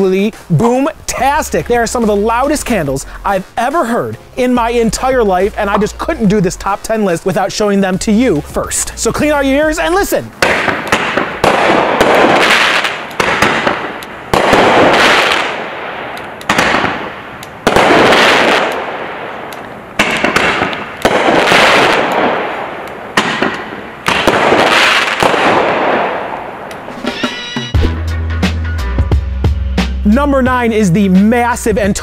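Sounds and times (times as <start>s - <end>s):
roman candle bangs: 10.4s - 19.1s, 20.0s - 26.4s.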